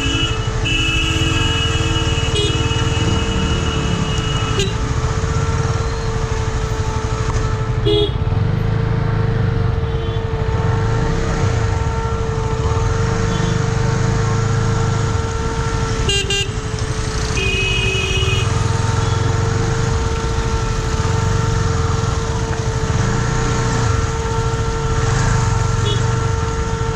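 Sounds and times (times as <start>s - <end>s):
vehicle horns honking: 0.0s - 8.5s, 11.8s - 13.9s, 15.5s - 21.2s, 23.1s - 26.3s
motorcycle engine low rumble: 0.0s - 26.9s.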